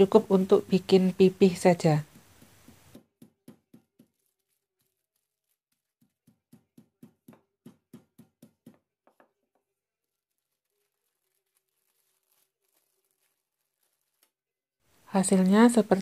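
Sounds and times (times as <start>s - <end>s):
rolling pin thudding on meat: 2.0s - 4.3s, 5.7s - 9.7s.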